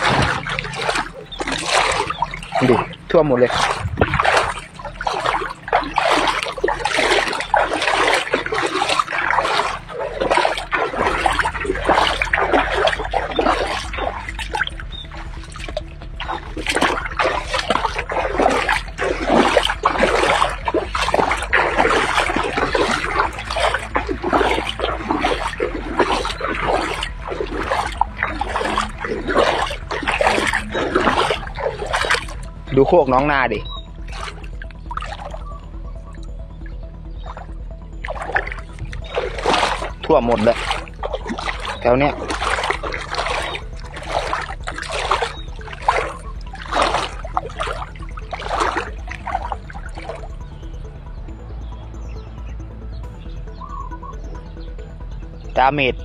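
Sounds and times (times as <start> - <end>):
low steady hum: 0.0 - 53.5
floodwater splashing and trickling: 0.0 - 56.0.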